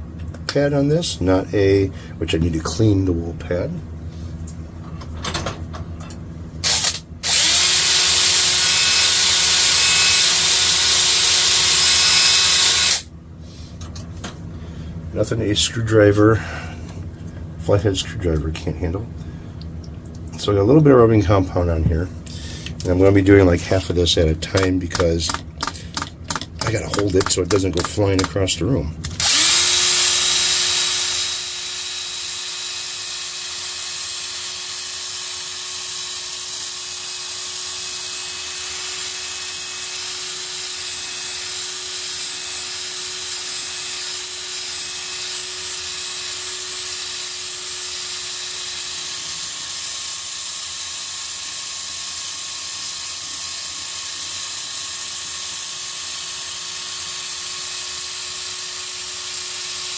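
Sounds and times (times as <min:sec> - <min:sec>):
drill motor whine with hiss: 0:06.6 - 0:13.1, 0:29.2 - 0:59.9.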